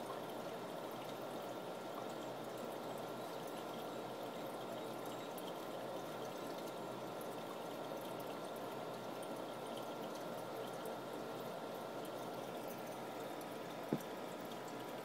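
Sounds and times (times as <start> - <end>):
water trickling in aquarium: 0.0 - 15.0.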